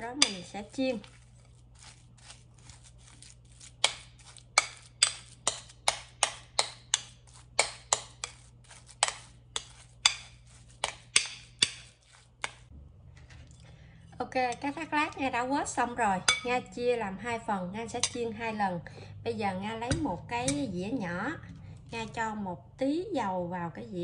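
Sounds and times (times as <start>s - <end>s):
spoon slapping paste in bowl: 0.1s - 12.7s.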